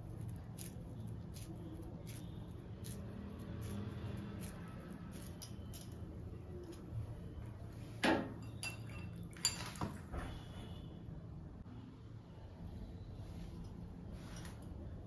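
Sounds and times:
utensils clinking: 8.2s - 10.1s.

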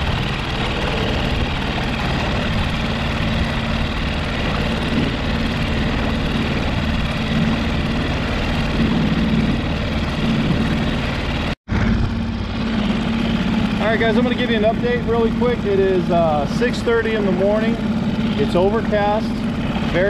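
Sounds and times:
boat motor humming: 0.0s - 20.0s
boat moving through water: 0.0s - 20.0s.

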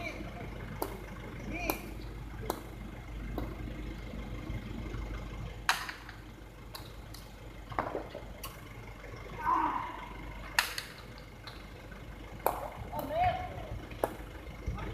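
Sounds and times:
steady low hum: 0.0s - 14.9s
hard ball cracking against wall: 12.4s - 13.1s.

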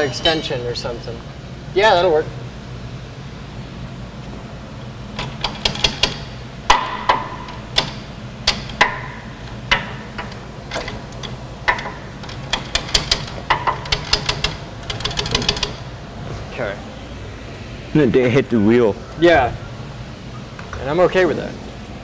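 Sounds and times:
hammer striking metal: 6.0s - 10.1s.

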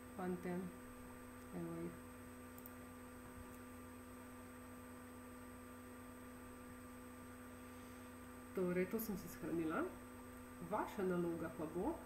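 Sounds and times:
steady electrical hum: 0.0s - 12.0s
faint clicks: 2.5s - 2.8s.

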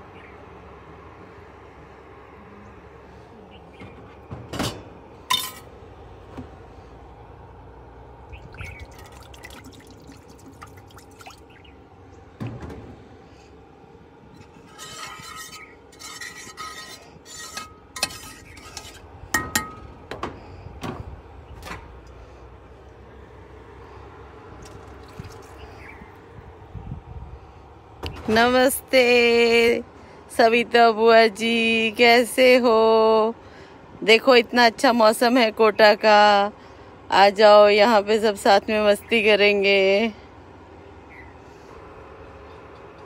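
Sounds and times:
steel utensils clinking and scraping: 5.3s - 5.7s, 14.4s - 19.8s.

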